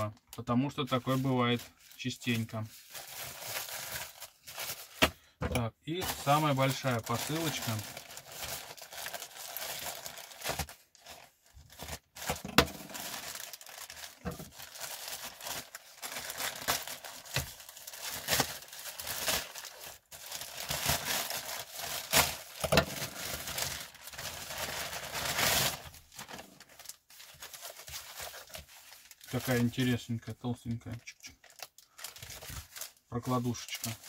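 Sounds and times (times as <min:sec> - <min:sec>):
plastic film crinkling and tearing: 0:00.0 - 0:05.3, 0:05.9 - 0:34.0.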